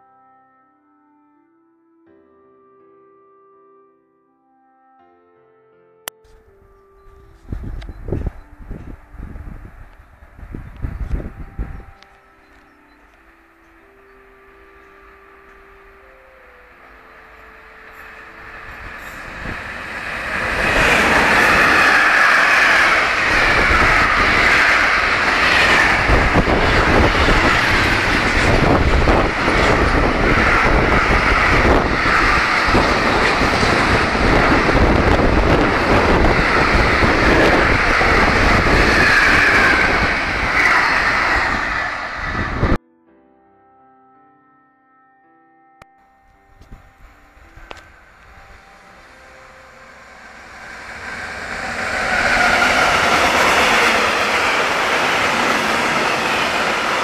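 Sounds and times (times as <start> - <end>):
rumble of train wagon wheels: 7.4 - 42.8, 47.4 - 57.0
high wavering wheel squeal: 16.6 - 42.8, 48.4 - 57.0.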